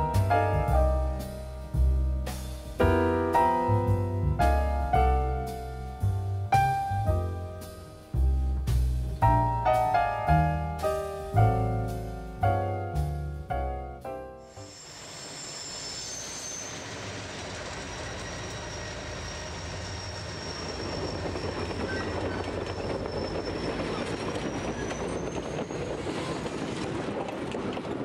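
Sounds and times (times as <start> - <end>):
high wheel squeal: 14.5 - 26.7
train wheels on rails: 14.5 - 28.0.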